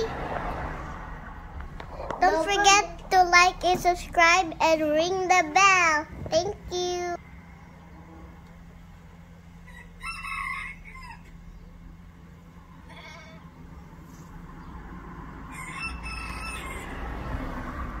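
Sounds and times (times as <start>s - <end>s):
rooster crowing: 9.6s - 11.4s, 15.4s - 17.5s.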